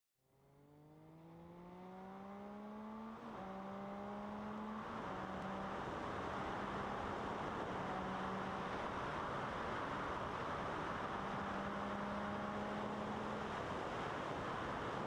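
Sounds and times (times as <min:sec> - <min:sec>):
motorcycle engine accelerating: 0:00.3 - 0:09.2, 0:10.6 - 0:13.6
rush of wind: 0:04.8 - 0:12.0, 0:13.0 - 0:15.0.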